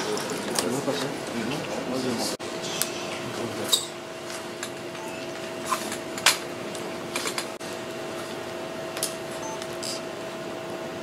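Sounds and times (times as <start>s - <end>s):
two-tone low hum: 4.7s - 7.1s, 7.7s - 11.0s.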